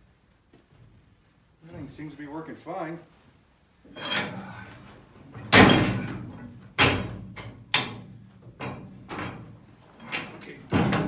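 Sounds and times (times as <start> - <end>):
yard wagon and board banging: 5.3 - 11.0.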